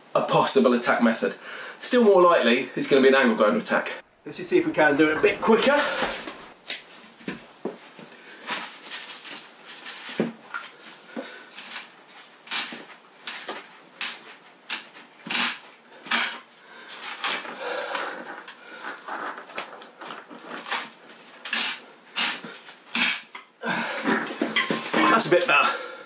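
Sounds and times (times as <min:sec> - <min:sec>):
man grunting and breathing hard: 0:04.8 - 0:06.5, 0:23.6 - 0:24.3.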